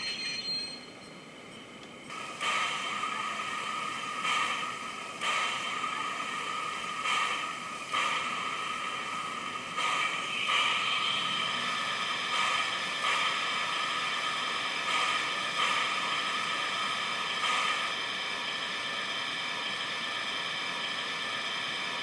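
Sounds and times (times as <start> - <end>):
steam hissing from small speaker: 2.1 - 22.0.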